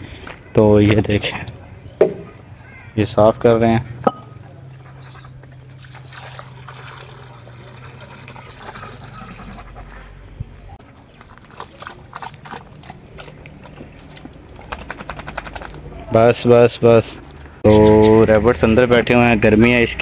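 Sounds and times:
water pouring into a bowl: 0:05.8 - 0:09.8
dog lapping water: 0:10.8 - 0:15.8.

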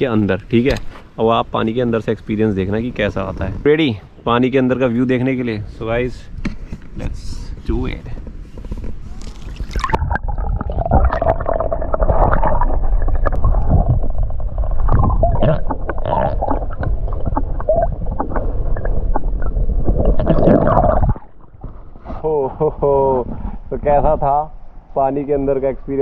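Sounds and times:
underwater gurgling and bubbling: 0:09.5 - 0:22.0.

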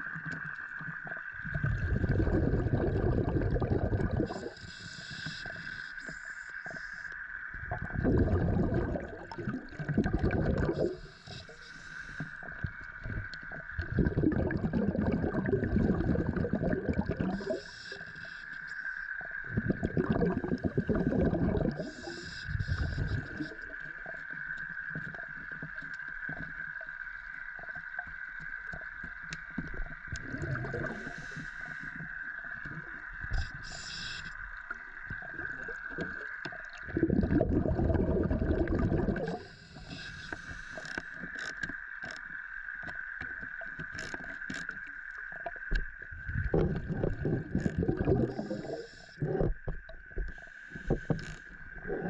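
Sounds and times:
faint clicks: 0:00.0 - 0:01.6, 0:04.2 - 0:07.6, 0:21.7 - 0:36.9, 0:39.2 - 0:51.9
regulator bubbles underwater: 0:00.0 - 0:52.0
inhaled breath hissing: 0:04.2 - 0:07.1, 0:10.8 - 0:12.6, 0:17.4 - 0:19.0, 0:20.8 - 0:23.6, 0:30.8 - 0:32.1, 0:33.3 - 0:34.4, 0:39.2 - 0:41.2, 0:48.3 - 0:49.4, 0:50.3 - 0:51.6.

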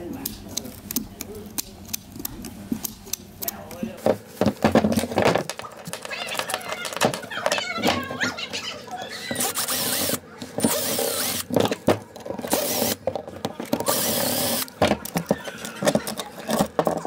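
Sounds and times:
cordless drill spinning: 0:09.2 - 0:11.6, 0:12.4 - 0:13.0, 0:13.8 - 0:14.8.

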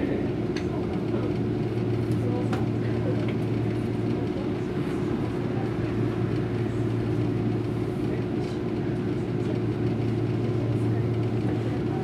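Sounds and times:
low hum inside tram car: 0:00.0 - 0:12.0.

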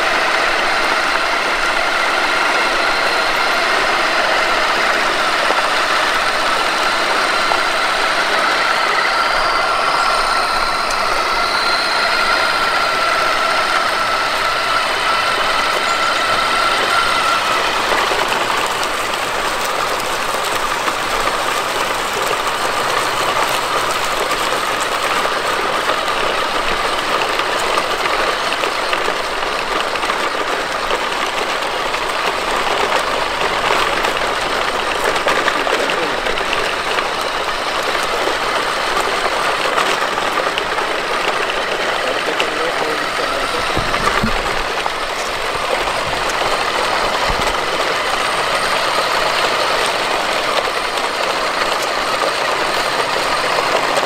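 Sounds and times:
electric motor and gearbox whine: 0:00.0 - 0:54.0
tyres rolling on gravel and leaves: 0:00.0 - 0:54.0.

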